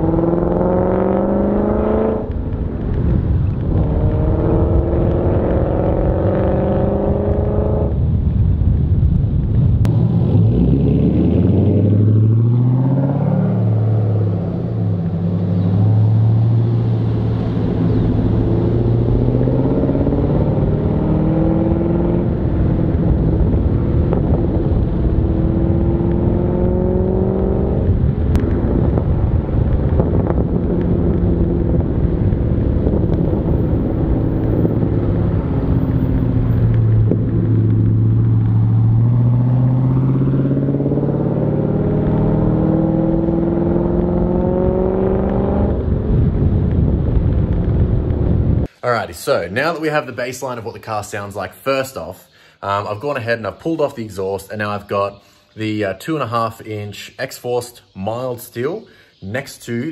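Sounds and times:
car engine accelerating: 0.0s - 8.0s, 9.8s - 48.7s.

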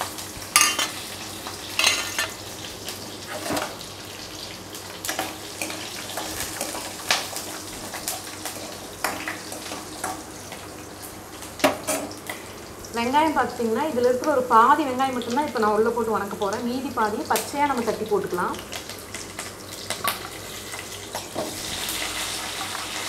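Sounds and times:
spices sizzling in oil: 0.0s - 23.0s
steel ladle scraping a pan: 1.8s - 2.4s.

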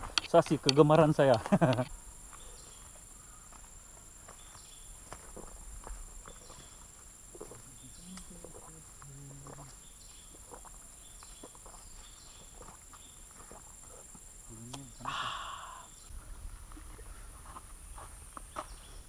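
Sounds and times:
high-pitched insect drone: 13.5s - 16.1s
breathy burst: 15.0s - 15.9s.

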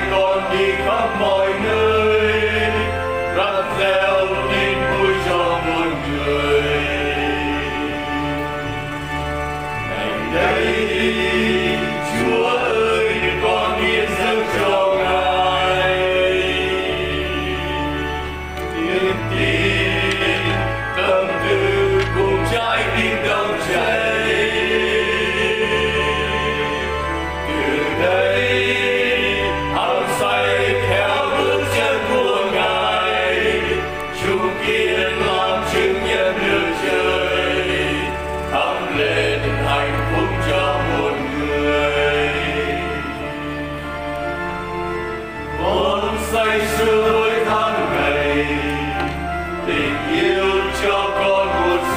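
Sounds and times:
instrumental backing: 0.0s - 51.9s
voices singing a hymn: 0.0s - 51.9s.

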